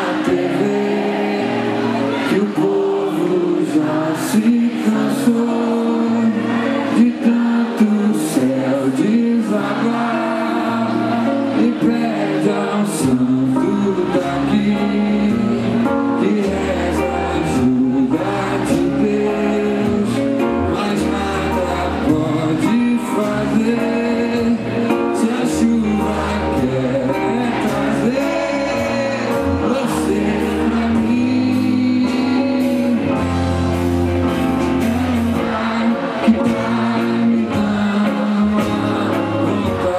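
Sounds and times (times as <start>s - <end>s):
electric guitar: 0.0s - 39.9s
bass line: 10.6s - 39.9s
drums: 11.8s - 39.9s.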